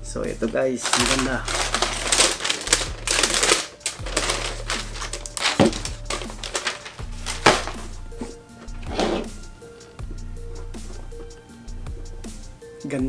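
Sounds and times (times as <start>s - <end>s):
tissue paper rustling: 0.4s - 9.9s.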